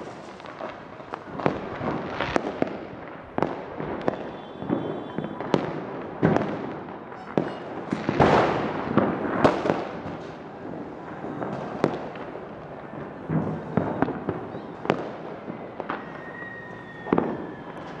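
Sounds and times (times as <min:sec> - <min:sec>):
firecrackers banging: 0:00.0 - 0:18.0
fireworks crackling: 0:00.0 - 0:18.0.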